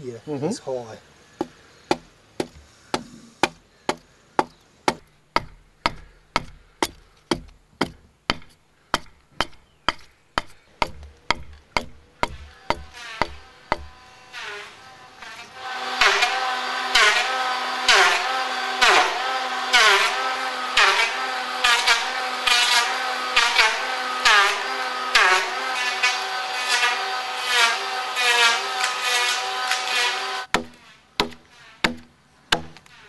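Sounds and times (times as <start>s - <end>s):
power tool cutting wood: 12.2s - 30.5s.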